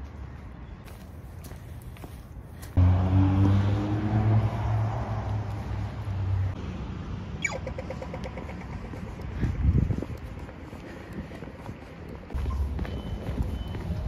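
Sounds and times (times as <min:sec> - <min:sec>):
car engine passing: 0:02.8 - 0:08.9.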